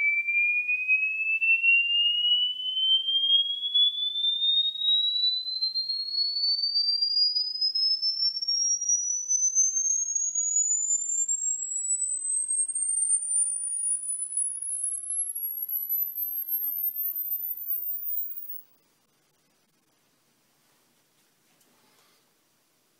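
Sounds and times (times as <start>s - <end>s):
sine tone sweeping upward: 0.0s - 6.4s, 7.4s - 18.8s.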